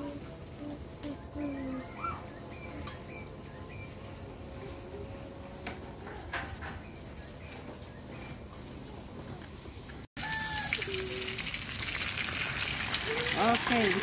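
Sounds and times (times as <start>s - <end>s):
high insect drone: 0.0s - 14.0s
short pitched calls: 0.6s - 3.8s
fish deep-frying in hot oil: 10.2s - 14.0s.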